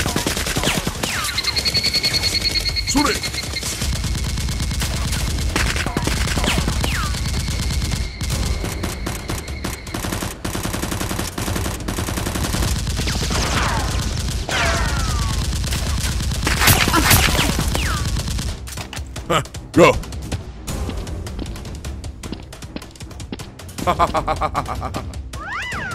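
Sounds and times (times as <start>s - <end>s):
automatic gunfire: 0.0s - 18.7s.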